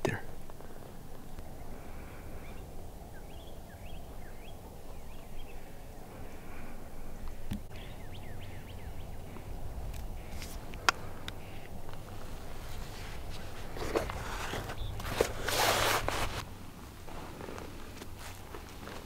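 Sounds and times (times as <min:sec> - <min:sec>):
bird chirps: 0:00.0 - 0:12.2, 0:14.5 - 0:15.2
low steady rumble: 0:00.0 - 0:19.0.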